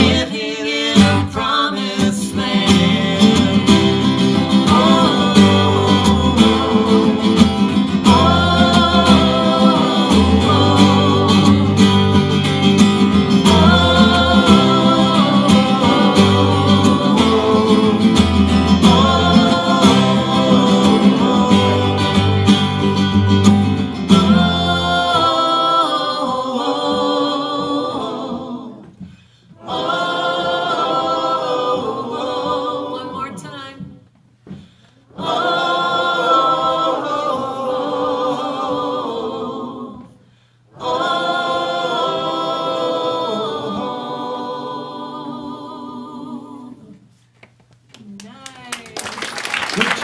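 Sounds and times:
strummed acoustic guitars: 0:00.0 - 0:28.2
folk duo singing: 0:00.0 - 0:47.1.

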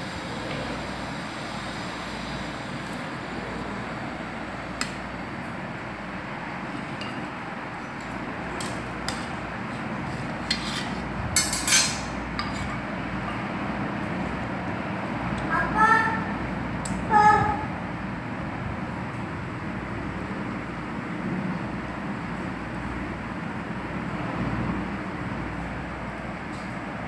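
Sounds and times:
steady background hiss: 0:00.0 - 0:27.0
metal cutter clinking on steel plate: 0:11.4 - 0:12.8.

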